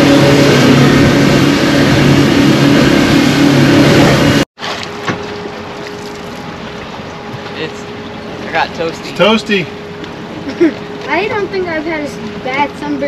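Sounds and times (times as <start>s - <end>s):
boat engine running: 0.0s - 13.0s
rushing air and water: 0.0s - 13.0s.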